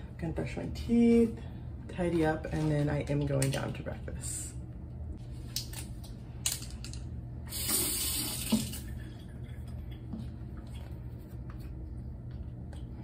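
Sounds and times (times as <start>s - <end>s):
tap water rushing: 7.5s - 10.8s.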